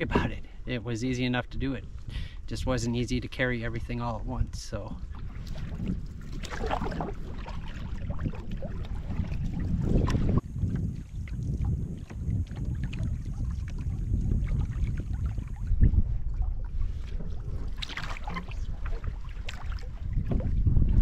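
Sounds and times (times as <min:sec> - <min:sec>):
water lapping the hull: 0:00.0 - 0:21.0
wind rumble on microphone: 0:00.0 - 0:21.0
paddle strokes splashing: 0:05.0 - 0:21.0.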